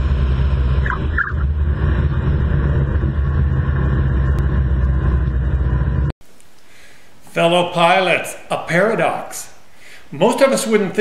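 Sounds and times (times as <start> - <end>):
engine droning: 0.0 - 6.2.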